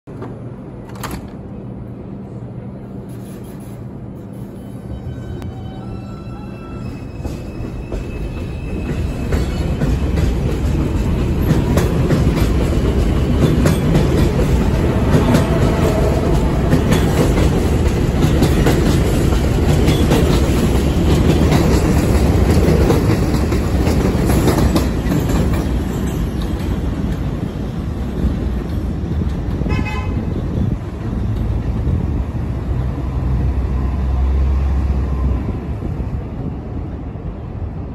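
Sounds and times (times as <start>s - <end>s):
subway cars rumbling past: 0.1s - 37.9s
wheels clicking over rail joints: 7.3s - 31.6s.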